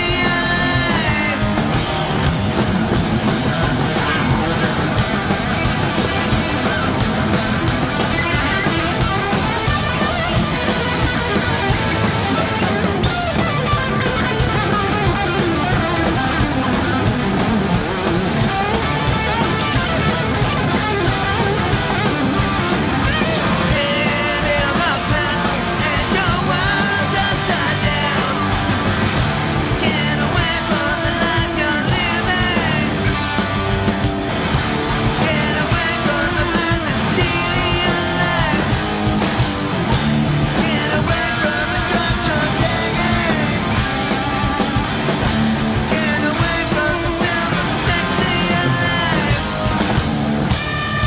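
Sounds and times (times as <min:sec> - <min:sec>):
lead singer vocals: 0:00.0 - 0:01.8, 0:23.0 - 0:28.6, 0:29.7 - 0:33.4, 0:35.1 - 0:39.0, 0:40.5 - 0:44.9, 0:45.8 - 0:49.8
bass guitar: 0:00.0 - 0:51.0
drums: 0:00.0 - 0:51.0
electric guitar: 0:00.0 - 0:51.0.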